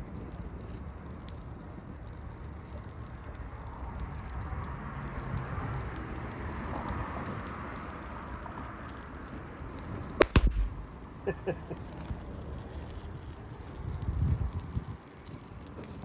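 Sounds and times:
fire hissing and crackling: 0:00.0 - 0:16.0
capacitor bursting with a bang: 0:10.2 - 0:11.2.

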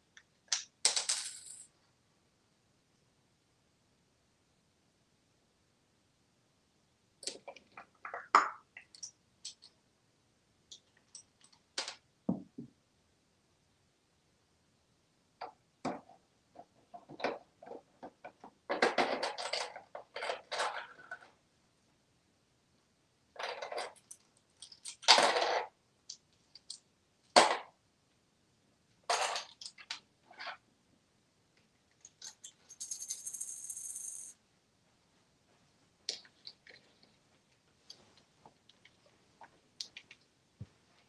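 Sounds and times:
parrot rummaging through coins: 0:18.7 - 0:21.3, 0:23.4 - 0:25.7, 0:32.0 - 0:34.3.

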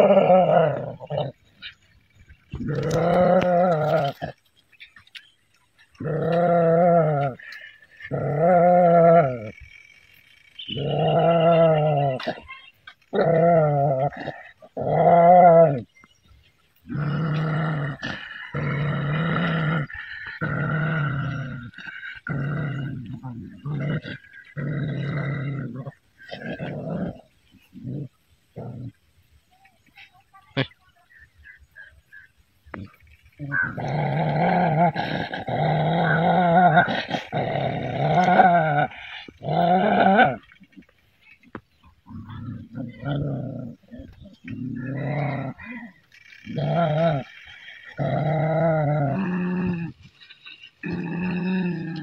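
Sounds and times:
dog growling: 0:00.0 - 0:05.2, 0:05.8 - 0:09.8, 0:10.6 - 0:16.0, 0:16.8 - 0:29.0, 0:32.7 - 0:40.8, 0:41.8 - 0:52.0.

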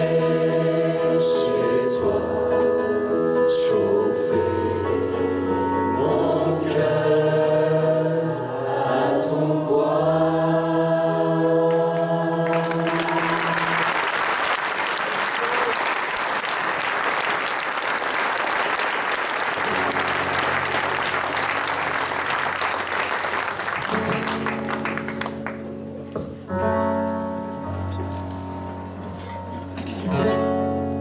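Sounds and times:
choir singing held chord: 0:00.0 - 0:14.1
audience applause: 0:12.4 - 0:25.8
acoustic guitar strumming: 0:19.6 - 0:22.2, 0:28.8 - 0:31.0.

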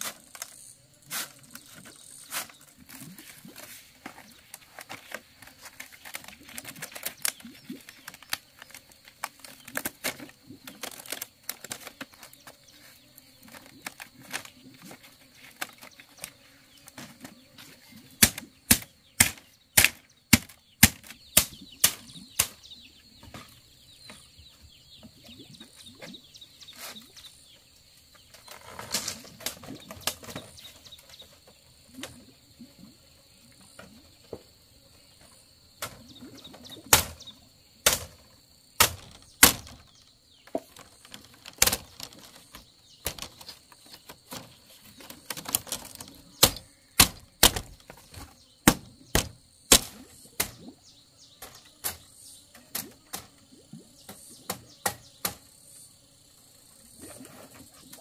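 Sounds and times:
bamboo rustling: 0:00.0 - 0:22.6, 0:28.0 - 0:32.3, 0:37.8 - 0:50.7.

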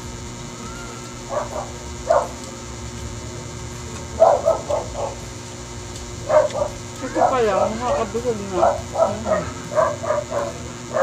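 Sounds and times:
dog barking: 0:01.3 - 0:02.4, 0:04.2 - 0:05.2, 0:06.2 - 0:07.5, 0:08.5 - 0:11.0.

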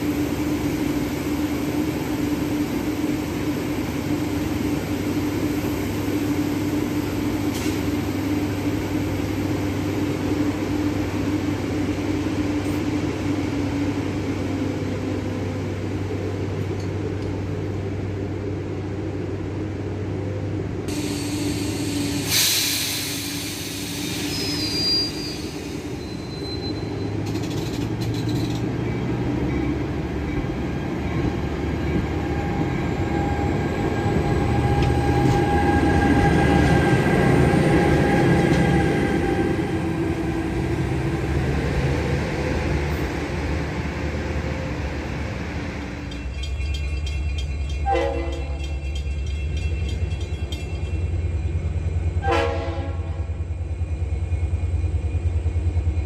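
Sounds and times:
train coaches rumbling past: 0:00.0 - 0:56.0
high wheel squeals: 0:23.1 - 0:28.6.

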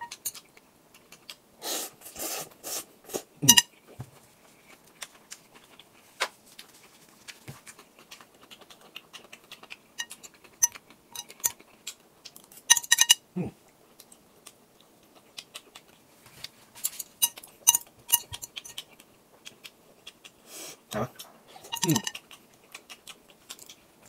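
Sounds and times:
chopsticks clinking against glass bowl: 0:03.4 - 0:03.7, 0:10.0 - 0:11.6, 0:12.6 - 0:13.2, 0:16.9 - 0:18.8, 0:21.6 - 0:22.2.

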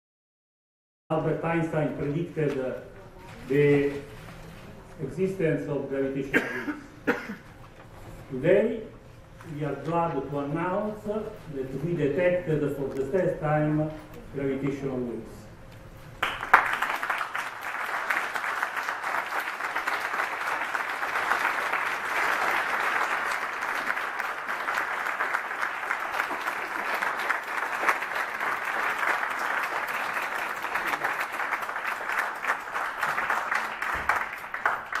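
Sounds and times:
audience applauding: 0:16.2 - 0:35.0.

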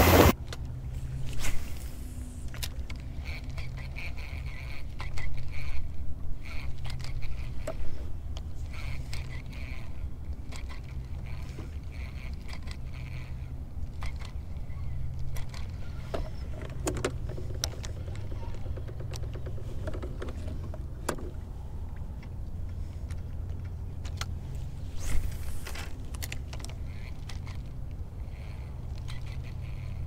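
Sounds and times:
short rush of noise: 0:00.0 - 0:00.4, 0:24.9 - 0:25.8
steady low hum: 0:00.0 - 0:30.0
fishing reel clicking and rattling: 0:08.6 - 0:15.8, 0:25.6 - 0:30.0.

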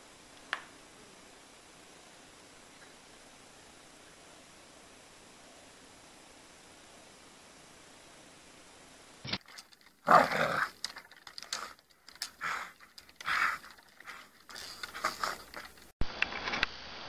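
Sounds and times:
dog growling: 0:10.0 - 0:11.8.

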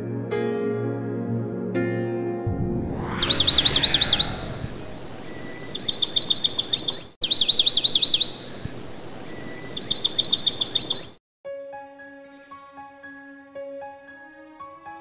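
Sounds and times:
songbird calling: 0:05.0 - 0:11.2
light outdoor hiss: 0:07.5 - 0:11.1.

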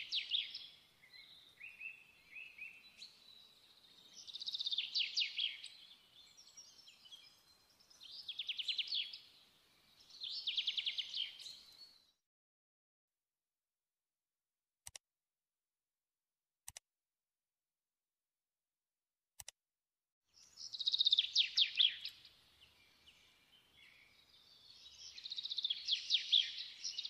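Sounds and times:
soft bird chirps: 0:00.0 - 0:12.2, 0:20.4 - 0:27.0
songbird trilling: 0:20.7 - 0:22.2.

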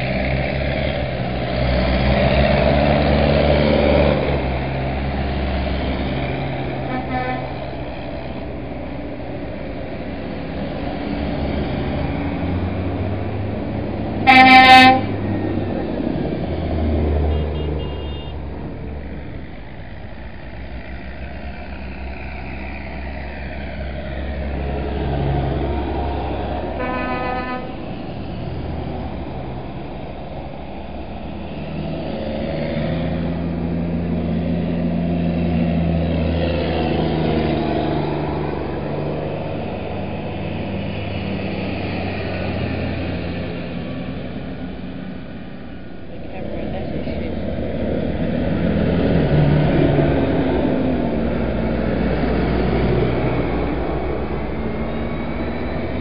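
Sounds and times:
diesel tractor engines passing: 0:00.0 - 0:56.0
horn blast: 0:06.8 - 0:07.7, 0:14.2 - 0:15.2, 0:17.3 - 0:18.4, 0:26.8 - 0:27.9.

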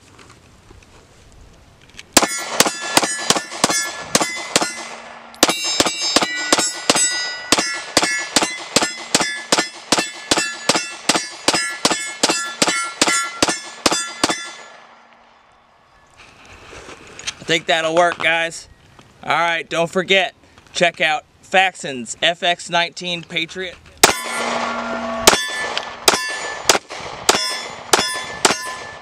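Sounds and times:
steel plate clanging: 0:02.2 - 0:14.8, 0:24.0 - 0:29.0
pistol shots: 0:02.2 - 0:15.0, 0:24.0 - 0:29.0.

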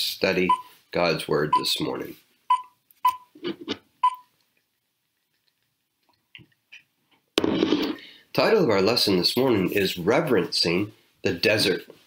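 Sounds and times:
short high countdown beeps: 0:02.5 - 0:03.3.

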